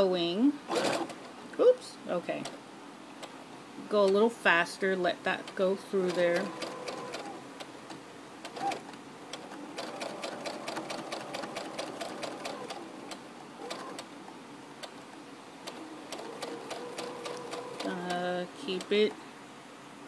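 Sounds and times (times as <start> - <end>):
sewing machine stitching: 0.7 - 1.3, 5.4 - 14.1, 15.7 - 18.3.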